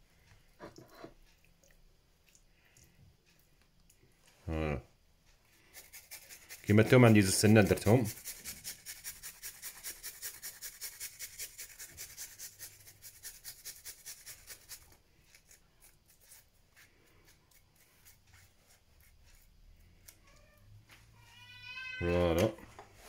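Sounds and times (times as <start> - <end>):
garlic grated on metal grater: 5.7 - 16.5.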